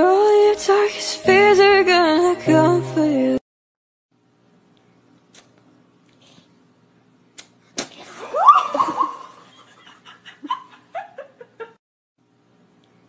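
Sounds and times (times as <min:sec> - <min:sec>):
startled cry: 0:08.2 - 0:09.2
choppy laughter: 0:08.2 - 0:11.8.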